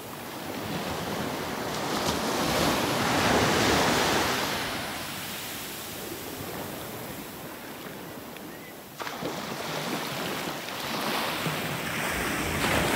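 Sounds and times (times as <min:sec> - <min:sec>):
ocean surf washing onto beach: 0:00.0 - 0:12.9.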